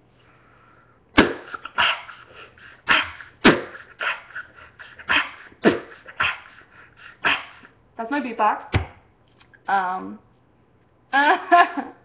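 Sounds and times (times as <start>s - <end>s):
beatboxing kick and snare: 1.2s - 2.0s, 2.9s - 4.2s, 5.1s - 6.6s.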